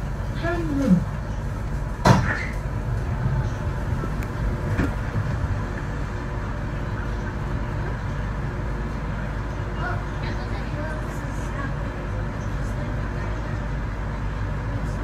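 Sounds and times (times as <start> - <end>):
train running low rumble: 0.0 - 15.0
sharp clunk: 2.0 - 2.5.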